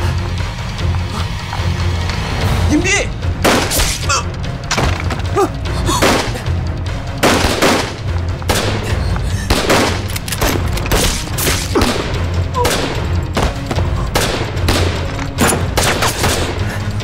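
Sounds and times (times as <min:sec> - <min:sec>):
low music drone: 0:00.0 - 0:17.0
gunshots: 0:03.4 - 0:04.1, 0:07.2 - 0:08.8, 0:09.4 - 0:16.6.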